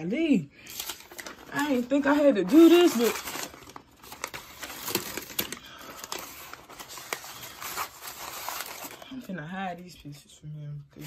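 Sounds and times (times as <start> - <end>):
paper rustling and crinkling: 0.7 - 9.3.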